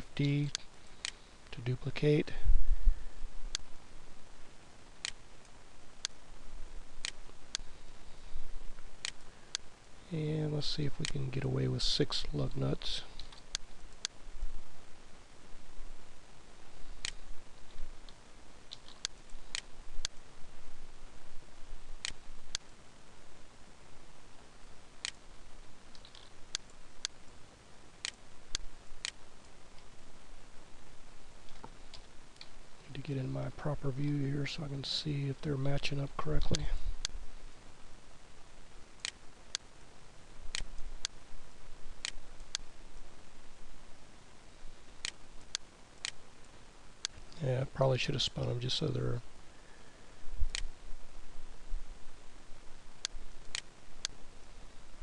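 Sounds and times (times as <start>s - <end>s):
microphone hiss: 0.0s - 55.0s
computer mouse clicks: 25.9s - 27.2s, 53.0s - 54.2s.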